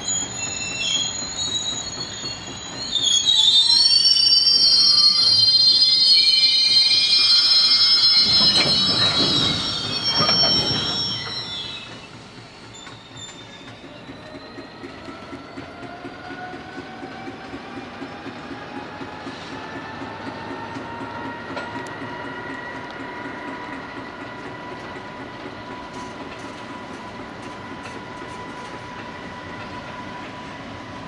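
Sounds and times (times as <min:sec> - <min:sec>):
diesel locomotive engines: 0:00.0 - 0:31.0
wheels clicking over rail joints: 0:08.2 - 0:30.6.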